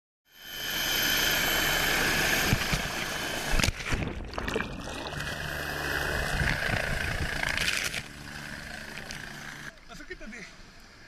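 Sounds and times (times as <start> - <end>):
helicopter turbine and rotor noise: 0.3 - 4.0, 5.0 - 11.0
body crashing into water: 3.6 - 5.1.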